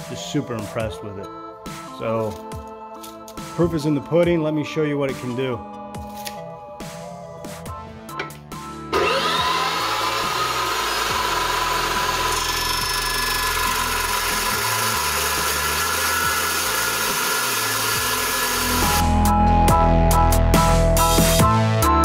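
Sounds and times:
background music: 0.0 - 22.0
chop saw cutting steel: 8.9 - 19.2.

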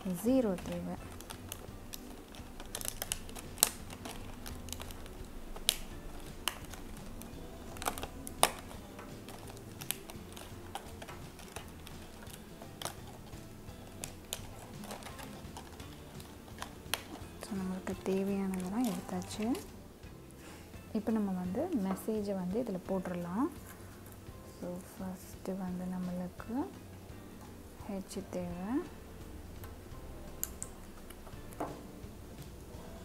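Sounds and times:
plastic tiles clicking and crackling: 0.6 - 6.9, 14.0 - 17.2.

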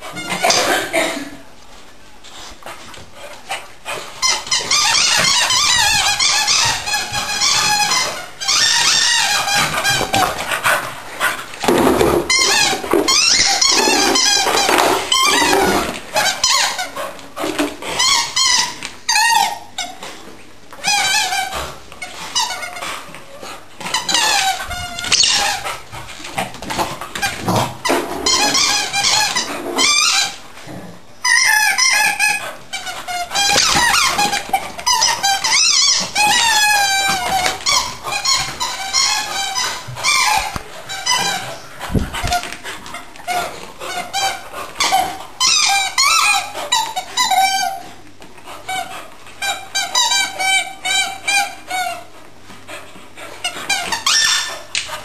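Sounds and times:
squeaky dog toy squealing: 4.2 - 10.4, 11.7 - 17.0, 17.9 - 20.0, 20.8 - 22.8, 23.8 - 25.7, 27.2 - 30.4, 31.2 - 42.5, 43.2 - 48.0, 48.6 - 52.1, 53.4 - 54.8.

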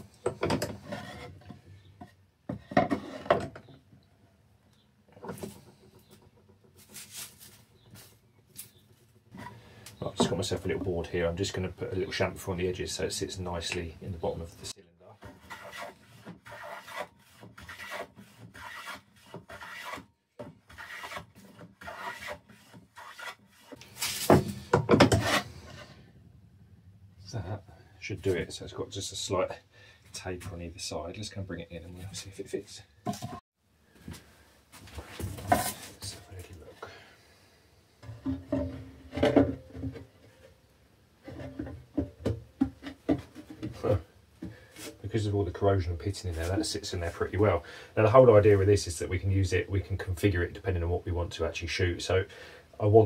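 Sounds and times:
board knocking and scraping in vise: 0.0 - 3.8, 10.2 - 10.9, 15.2 - 25.9, 33.0 - 33.4, 38.0 - 40.5, 41.2 - 44.6
hand plane shaving wood: 15.2 - 20.1, 20.7 - 24.2.

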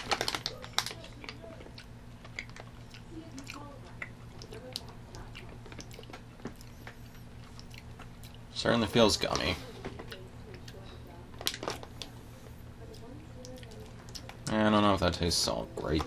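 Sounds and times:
person chewing candy: 0.0 - 8.6, 12.9 - 14.6
steady low hum: 0.0 - 16.0.

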